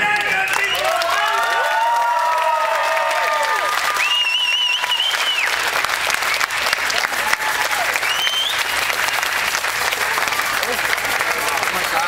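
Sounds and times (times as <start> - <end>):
audience applauding: 0.0 - 12.0
warbling whistle: 4.0 - 5.6, 8.0 - 8.7.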